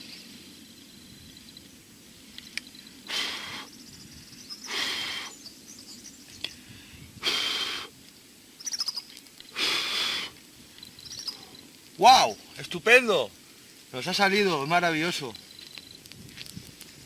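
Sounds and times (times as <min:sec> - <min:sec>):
person blowing hard: 0:03.1 - 0:03.7, 0:07.1 - 0:08.0, 0:09.6 - 0:10.4.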